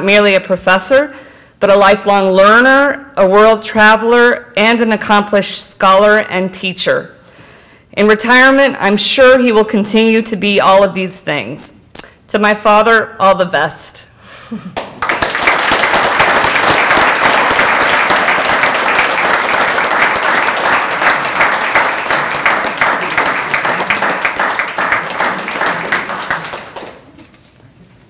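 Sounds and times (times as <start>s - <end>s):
audience applauding: 14.8s - 27.4s.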